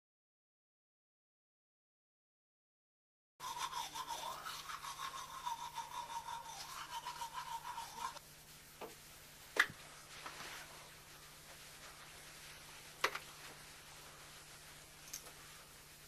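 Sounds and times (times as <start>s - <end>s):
toothbrush scrubbing teeth: 3.4s - 8.6s.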